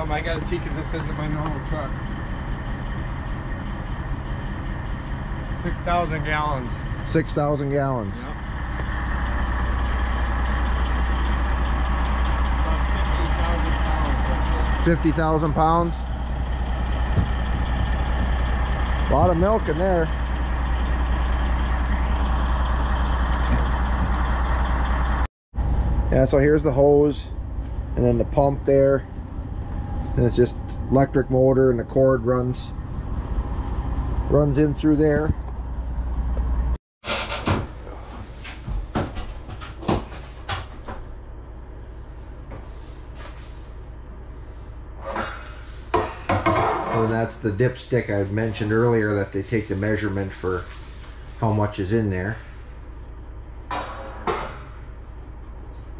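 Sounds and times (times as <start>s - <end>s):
steady low hum: 0.0s - 36.8s
truck engine idling: 0.0s - 36.8s, 39.4s - 55.9s.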